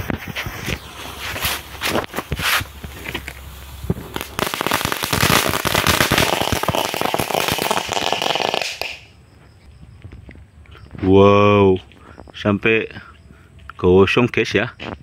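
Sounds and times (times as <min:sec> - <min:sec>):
firecracker crackling pops: 0:00.0 - 0:09.1
firecracker fuse fizzing: 0:00.0 - 0:09.1.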